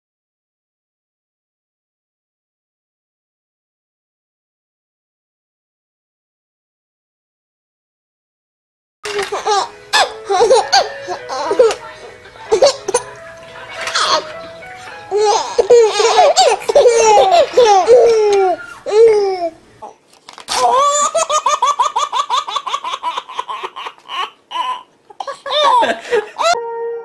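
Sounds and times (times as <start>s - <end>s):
babies laughing: 9.1s - 11.8s, 12.5s - 26.6s.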